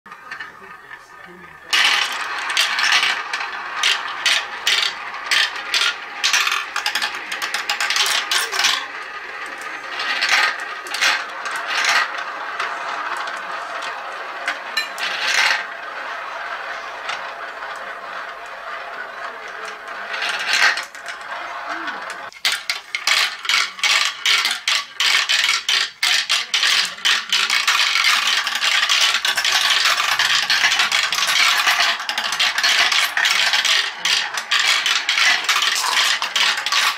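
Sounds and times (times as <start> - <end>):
marbles clattering down plastic track: 0.1 - 36.9
marbles rolling whir: 0.1 - 36.9
marbles clicking together: 1.6 - 36.9.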